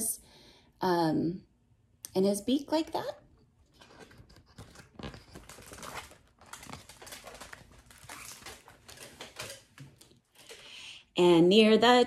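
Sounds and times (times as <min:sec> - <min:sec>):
book pages turning: 0:03.7 - 0:10.5.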